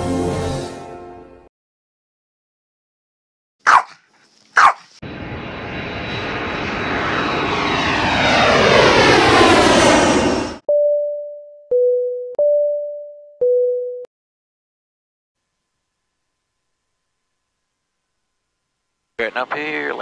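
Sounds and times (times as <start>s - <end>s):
airplane flyby rushing: 3.7s - 10.6s.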